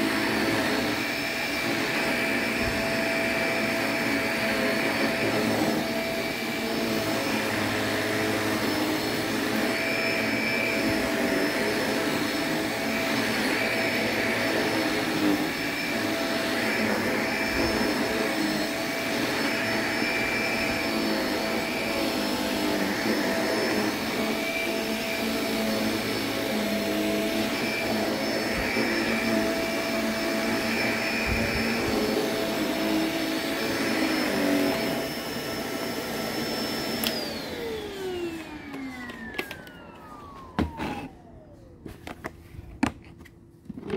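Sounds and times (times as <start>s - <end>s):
vacuum cleaner on rug: 0.0s - 42.9s, 43.6s - 43.9s.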